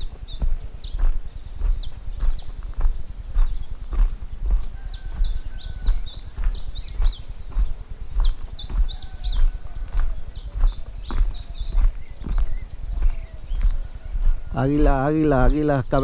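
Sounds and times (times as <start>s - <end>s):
insect high pulsing trill: 0.0s - 16.0s.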